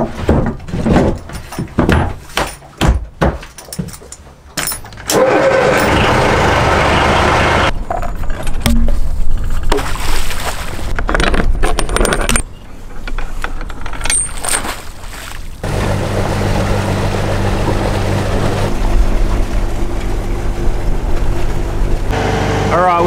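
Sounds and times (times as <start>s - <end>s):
metallic clinks and knocks: 1.0s - 5.1s, 13.5s - 14.7s
boat diesel engine running: 5.2s - 7.8s, 15.6s - 23.0s
water rushing along hull: 14.8s - 23.0s.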